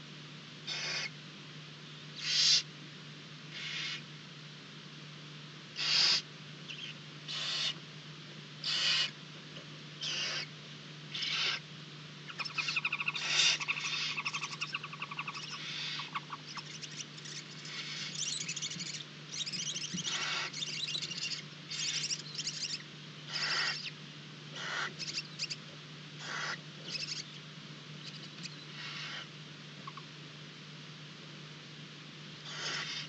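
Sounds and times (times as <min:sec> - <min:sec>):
steady low hum: 0:00.0 - 0:33.0
owls chittering: 0:00.7 - 0:01.1, 0:02.2 - 0:02.7, 0:03.5 - 0:04.0, 0:05.8 - 0:07.8, 0:08.6 - 0:09.2, 0:10.0 - 0:10.5, 0:11.1 - 0:11.6, 0:12.3 - 0:25.6, 0:26.2 - 0:27.4, 0:28.0 - 0:30.1, 0:32.4 - 0:33.0
barn owls hissing: 0:00.7 - 0:01.2, 0:02.2 - 0:02.7, 0:03.5 - 0:04.0, 0:05.8 - 0:07.8, 0:08.6 - 0:09.2, 0:10.0 - 0:10.5, 0:11.1 - 0:11.6, 0:12.3 - 0:25.6, 0:26.2 - 0:27.4, 0:28.1 - 0:29.3, 0:32.4 - 0:33.0.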